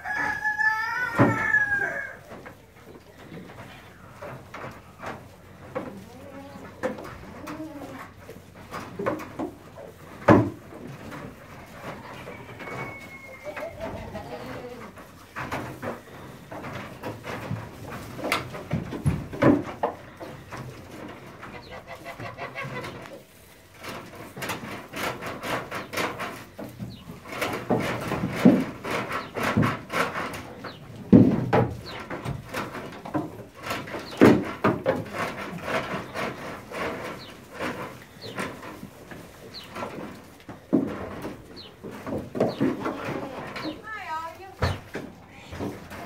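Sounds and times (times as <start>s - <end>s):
hooves knocking on wooden boards: 0.0s - 46.0s
goats cooing calls: 11.6s - 17.1s.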